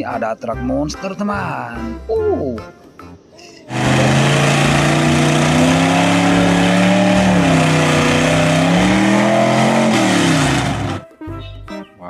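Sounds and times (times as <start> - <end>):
truck engine revving: 3.7 - 11.0
tyres churning through mud: 3.7 - 11.0.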